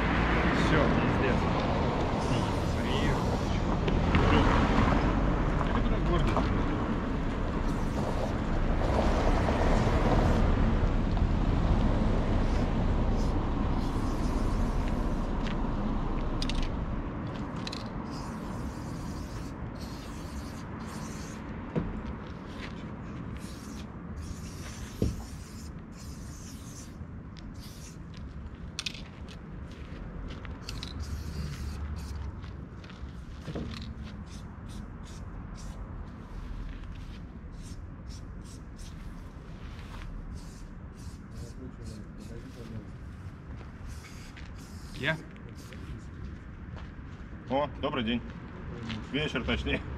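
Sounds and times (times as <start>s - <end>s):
low traffic rumble: 0.0s - 49.9s
spray paint can hissing: 2.1s - 3.6s, 7.6s - 8.5s, 12.4s - 15.4s, 17.6s - 21.4s, 23.3s - 28.0s, 30.6s - 32.2s, 33.7s - 35.8s, 37.5s - 39.3s, 40.0s - 42.6s, 43.8s - 45.9s.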